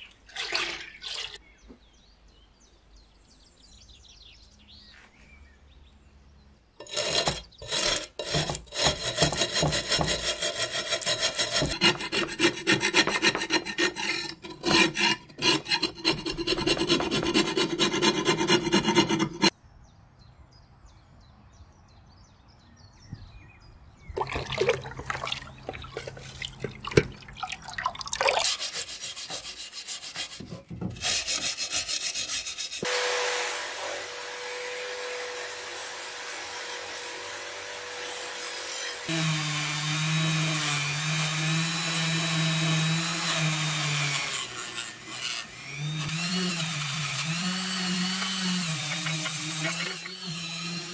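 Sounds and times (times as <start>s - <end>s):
wire brush scrubbing metal: 6.8s - 19.5s, 28.4s - 32.9s, 48.0s - 50.9s
liquid splashing: 24.2s - 28.6s.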